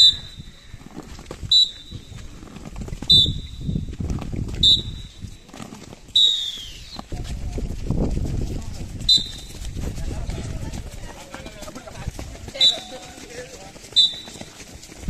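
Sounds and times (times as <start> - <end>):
whistle blasts: 0.0 - 0.6, 1.4 - 2.2, 3.1 - 3.9, 4.6 - 5.4, 6.1 - 7.0, 9.1 - 9.6, 12.5 - 13.1, 13.9 - 14.6.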